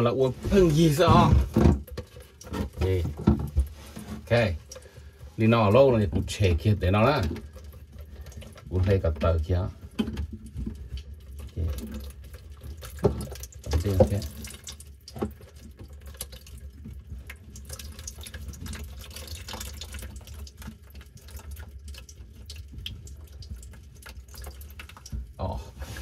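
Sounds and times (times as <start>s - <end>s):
water trickling from drain pipe: 0.0s - 26.0s
plastic drain pipe knocking: 0.4s - 4.6s, 5.7s - 7.6s, 8.6s - 12.1s, 12.8s - 15.4s.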